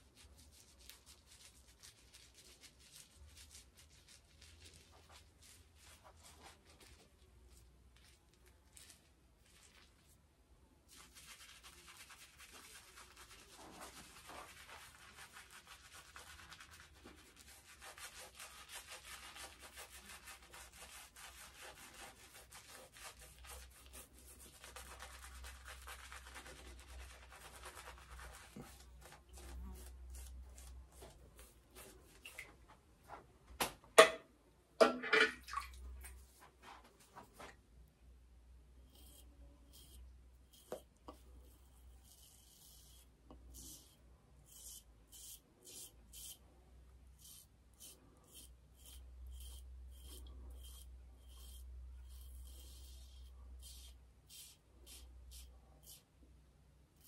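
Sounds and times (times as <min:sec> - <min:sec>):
shaving brush swishing on stubble: 0:00.0 - 0:10.2, 0:10.9 - 0:33.2.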